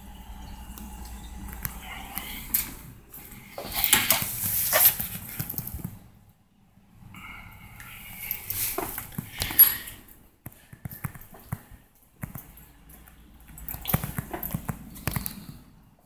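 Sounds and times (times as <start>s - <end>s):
footsteps: 1.0s - 6.0s.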